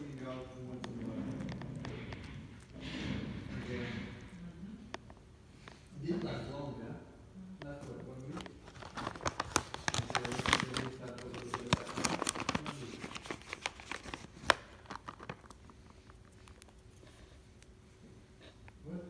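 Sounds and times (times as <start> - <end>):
plastic bag crinkling: 7.8 - 17.2.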